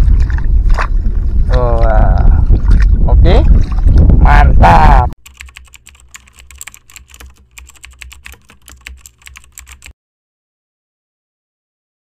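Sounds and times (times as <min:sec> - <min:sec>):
keyboard key clicks: 0:05.2 - 0:09.9.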